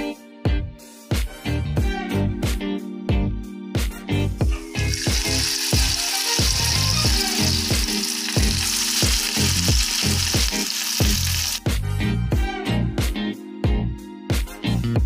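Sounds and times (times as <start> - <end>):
background music with beat: 0.0 - 15.0
food deep-frying in oil: 4.8 - 11.6.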